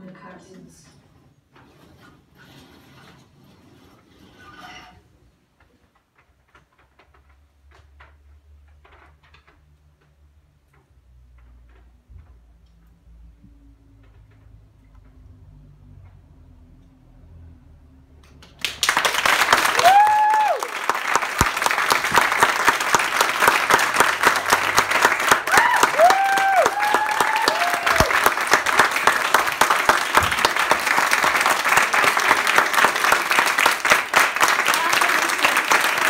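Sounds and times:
audience applause: 18.4 - 36.0
people whooping and cheering: 19.4 - 21.0, 25.3 - 28.8.

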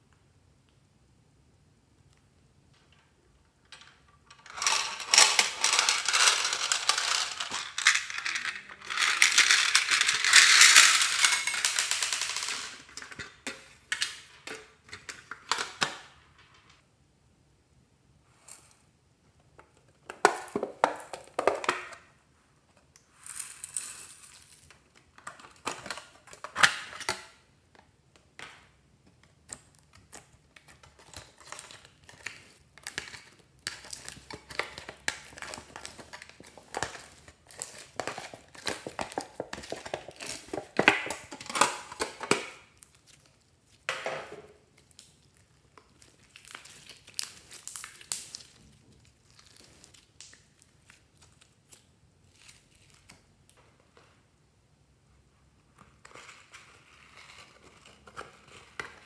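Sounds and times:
slime crackling and squelching: 44.6 - 53.6.

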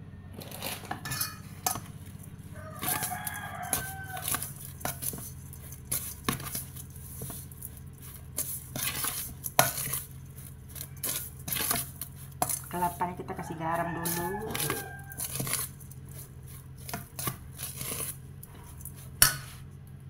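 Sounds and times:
steady low hum: 0.0 - 20.0
hands tossing grated coconut: 0.4 - 20.0
rooster crowing: 2.5 - 4.6, 13.2 - 15.6.

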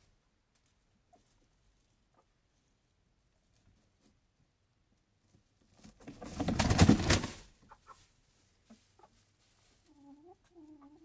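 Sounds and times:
faint rustles: 0.0 - 10.8
hen clucking: 1.0 - 2.5, 7.3 - 11.0
hen wings flapping: 5.9 - 7.5.

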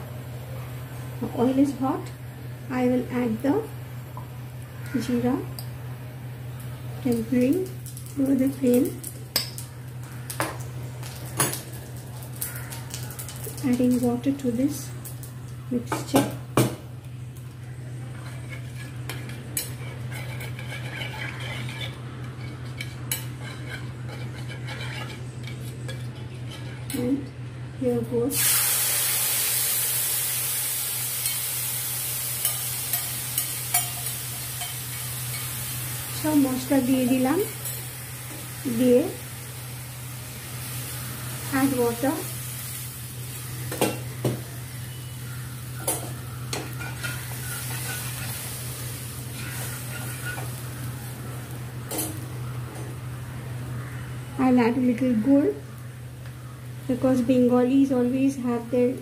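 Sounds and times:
steady low hum: 0.0 - 28.3
faint sizzle: 0.0 - 59.0
spoon scraping metal bowl: 18.1 - 27.1, 46.7 - 48.4, 49.4 - 50.5.

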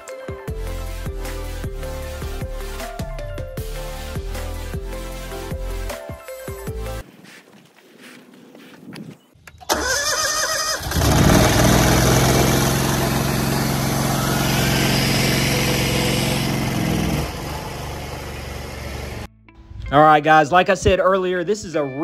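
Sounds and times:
electric starter cranking: 9.6 - 19.3
engine running steadily: 10.8 - 19.3.

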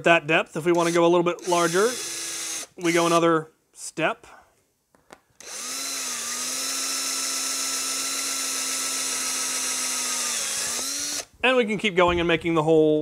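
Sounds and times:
cordless drill whining: 0.7 - 3.2, 5.4 - 11.4
drill bit cutting plastic: 0.7 - 3.2, 5.4 - 11.3.

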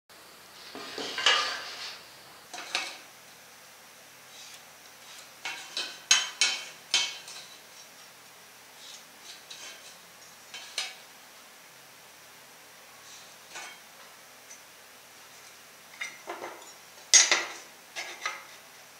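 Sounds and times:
metal clanks on wooden workbench: 16.0 - 18.5.

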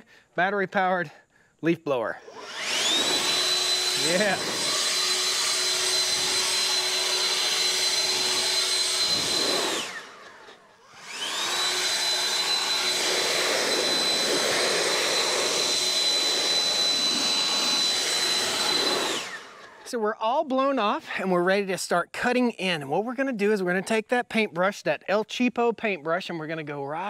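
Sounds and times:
leaf blower whining: 2.1 - 20.0.

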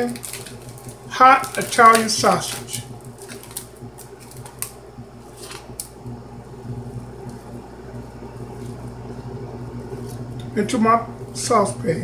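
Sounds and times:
plastic packaging crinkling: 0.0 - 6.0
steady low hum: 0.0 - 12.0.

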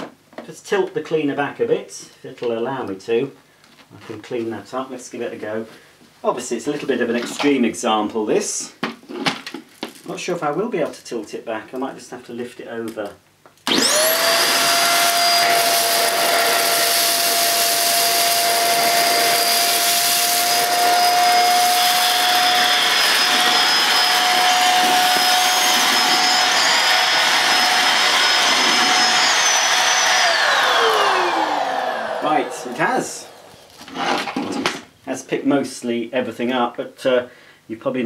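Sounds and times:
vacuum cleaner motor whine: 13.7 - 34.4.

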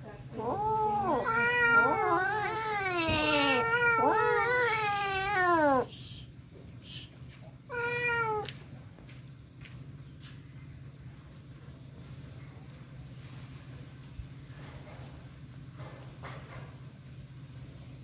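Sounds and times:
cats yowling: 0.4 - 5.9, 7.7 - 8.5.

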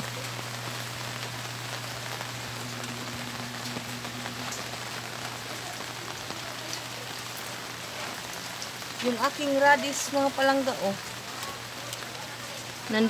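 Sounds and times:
low hum: 0.0 - 5.8
steady rain: 0.0 - 13.0.

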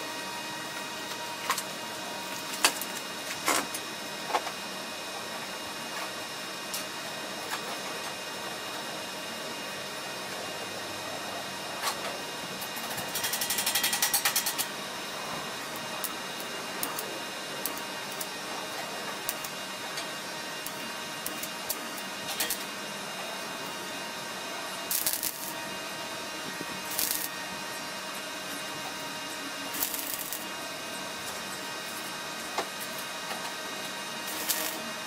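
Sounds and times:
steady background hum: 0.0 - 35.0
welding arc crackling: 0.7 - 3.8, 12.6 - 35.0.

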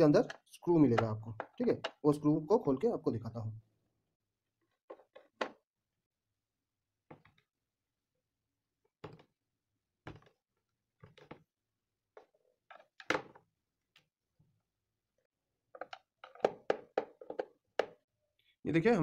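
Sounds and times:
screwdriver knocking on plastic: 0.2 - 2.0, 15.8 - 18.0.

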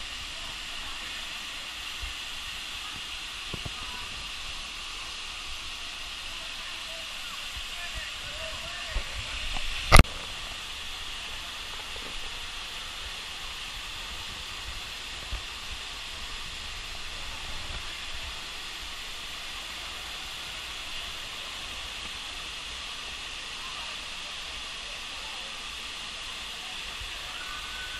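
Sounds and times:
waterfall rushing: 0.0 - 27.9.

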